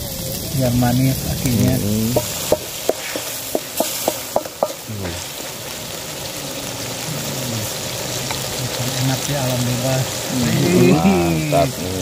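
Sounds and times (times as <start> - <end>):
snails sizzling in a wok: 0.0 - 12.0
knocks against wok: 2.1 - 4.8.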